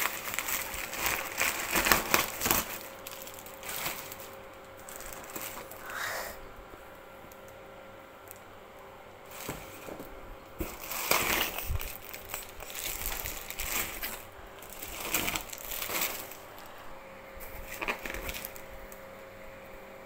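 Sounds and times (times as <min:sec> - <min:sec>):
bubble wrap crinkling: 0:00.0 - 0:06.1, 0:09.3 - 0:19.0.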